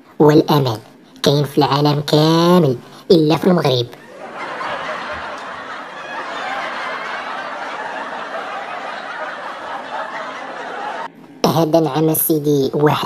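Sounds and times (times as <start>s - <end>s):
crowd laughing: 4.0s - 11.1s.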